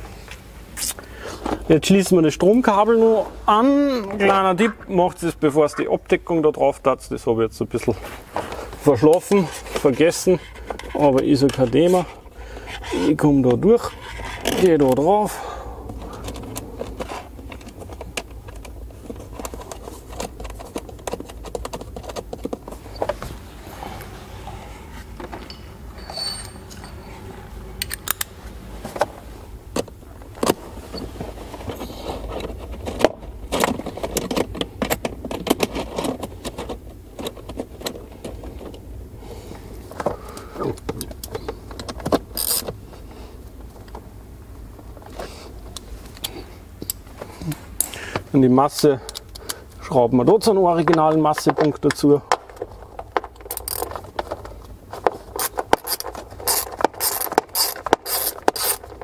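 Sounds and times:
metal fasteners and tools clinking: 25.2s - 28.3s, 30.9s - 38.8s, 40.7s - 42.7s, 50.8s - 59.0s.

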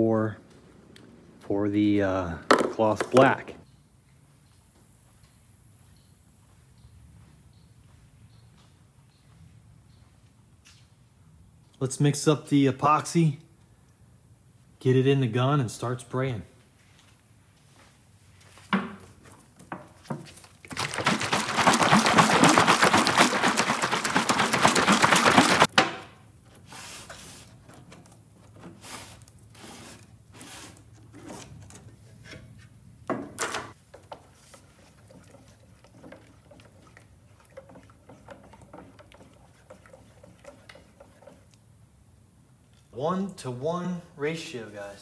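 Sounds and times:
knocks against metal can: 2.5s - 3.2s
stick stirring paint in metal can: 20.2s - 25.7s, 33.9s - 41.8s.

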